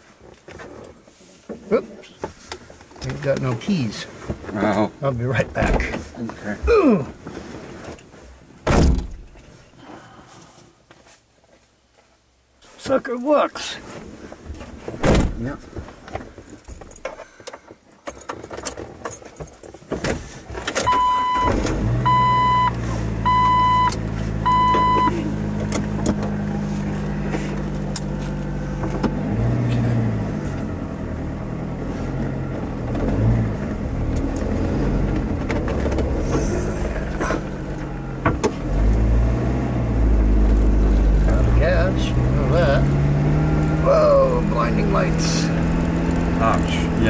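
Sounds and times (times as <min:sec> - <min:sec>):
car engine starting and driving: 0:00.2 - 0:09.6, 0:13.9 - 0:47.0
warning chime beeping: 0:20.9 - 0:25.2.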